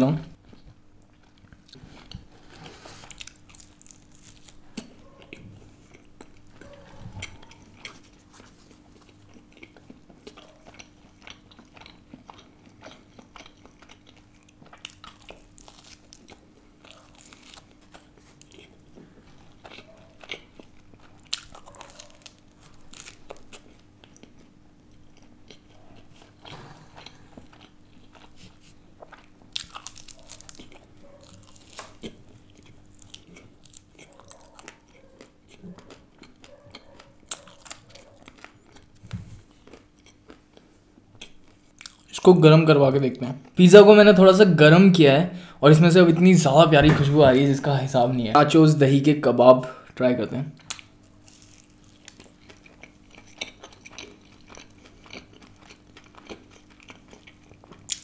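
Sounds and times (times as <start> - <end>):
biting and chewing pizza: 0.4 - 44.4, 50.6 - 58.0
crisp crust crunches: 2.4 - 5.0, 14.7 - 18.7, 19.7 - 24.4, 27.0 - 35.0, 50.6 - 58.0.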